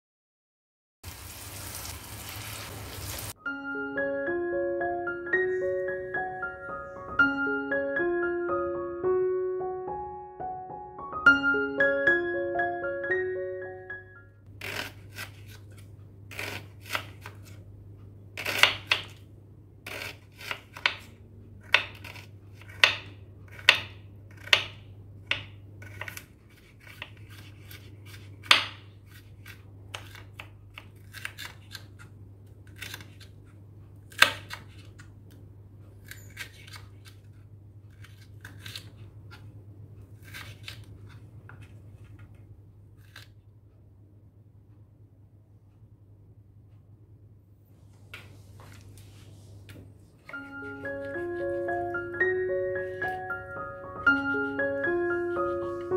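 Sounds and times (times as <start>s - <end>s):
knife chopping on wooden board: 18.4s - 19.2s, 19.9s - 31.6s.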